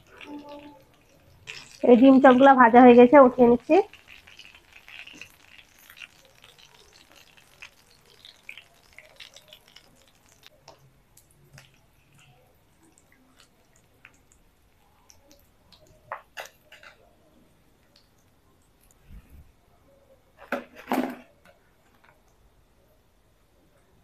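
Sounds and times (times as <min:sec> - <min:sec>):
hot oil sizzling and crackling: 0:00.0 - 0:17.0.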